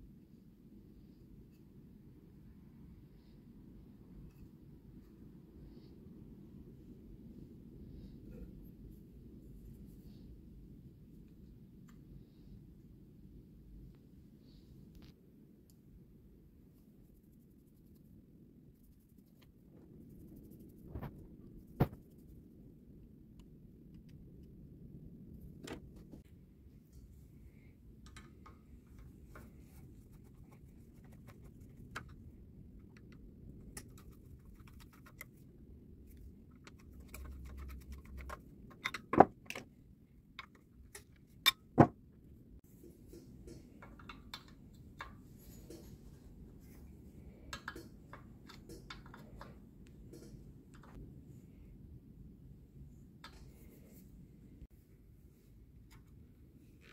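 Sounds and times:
low steady background noise: 0.0s - 56.9s
screwdriver and metal parts clicking: 36.6s - 39.6s.

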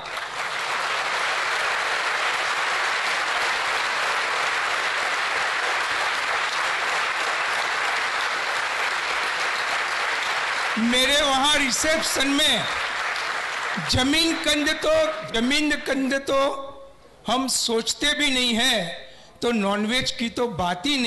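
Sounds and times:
audience applauding: 0.0s - 15.1s.

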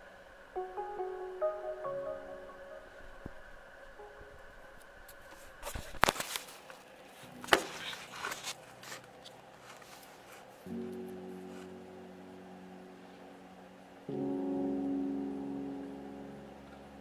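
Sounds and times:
background music: 0.6s - 4.7s, 10.7s - 17.0s.

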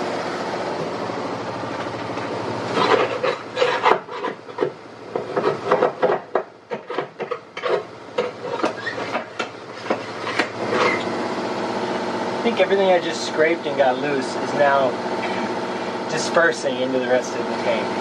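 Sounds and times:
scraper rasping inside metal tank: 2.7s - 11.1s.

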